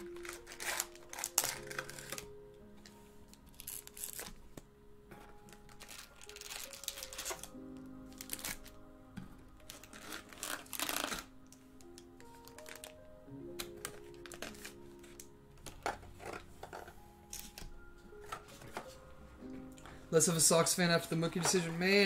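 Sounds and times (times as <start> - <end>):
foil packs crinkling: 0.0 - 2.4, 3.4 - 4.3, 5.4 - 8.8, 9.6 - 13.0, 13.6 - 15.3
quiet background music: 0.0 - 22.0.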